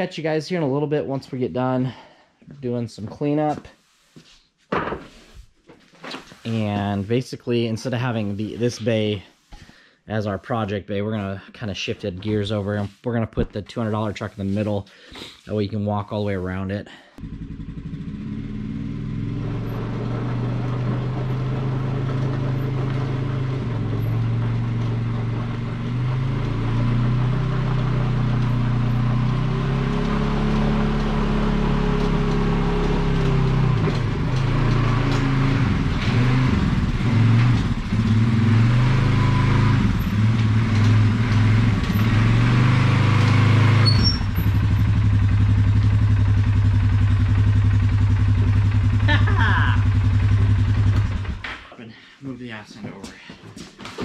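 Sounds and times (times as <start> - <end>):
quad bike engine running: 17.2 - 51.6.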